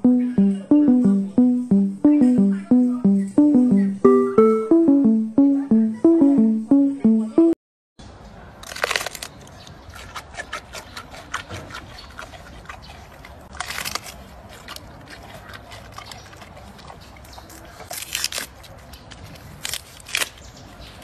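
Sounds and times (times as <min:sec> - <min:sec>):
panda crunching bamboo: 0:08.6 - 0:12.8, 0:13.5 - 0:16.2, 0:17.8 - 0:20.4.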